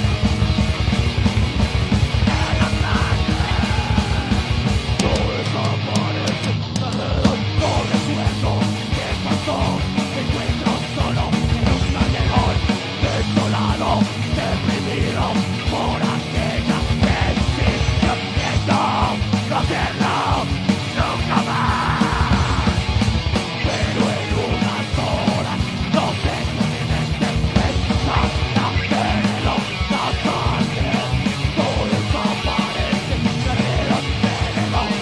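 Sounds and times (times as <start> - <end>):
bass guitar: 0.0 - 35.0
distorted electric guitars: 0.0 - 35.0
fast drums: 0.0 - 35.0
shouted vocals: 2.2 - 11.4, 12.0 - 22.9.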